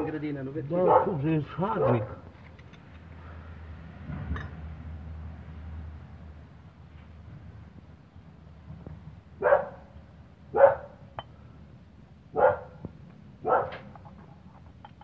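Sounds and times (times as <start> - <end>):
dog barking: 0.8 - 1.2, 9.4 - 9.9, 10.5 - 11.0, 12.3 - 12.8, 13.4 - 13.9.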